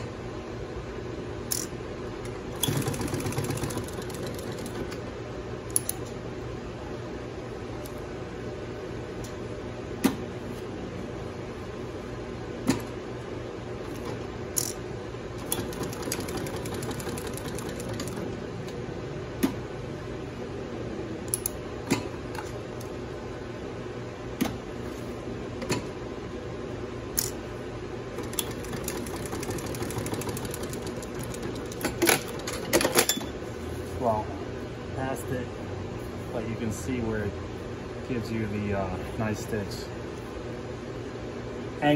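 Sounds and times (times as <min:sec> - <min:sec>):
sewing machine hum: 0:02.5 - 0:05.0, 0:15.3 - 0:18.4, 0:28.1 - 0:32.4.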